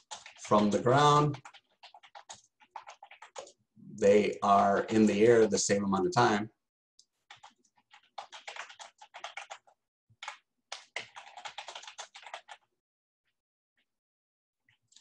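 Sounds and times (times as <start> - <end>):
computer keyboard typing: 0.0 - 3.6, 7.2 - 12.7.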